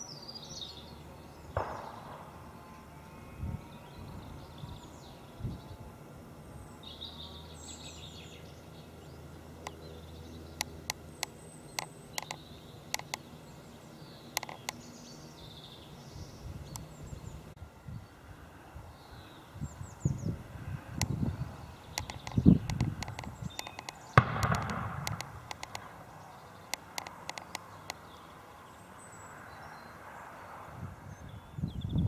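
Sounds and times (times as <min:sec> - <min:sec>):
small birds chirping: 0:00.0 - 0:32.0
sharp clicks: 0:10.6 - 0:13.2, 0:14.4 - 0:14.8, 0:21.9 - 0:26.0, 0:26.7 - 0:28.0.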